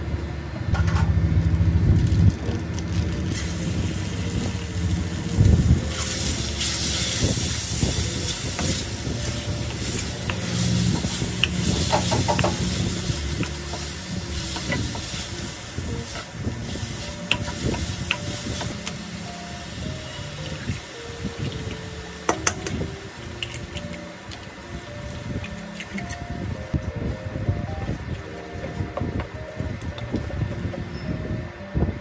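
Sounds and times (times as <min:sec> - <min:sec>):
steady low hum: 0:00.0 - 0:32.0
chicken sizzling in wok: 0:03.3 - 0:22.4.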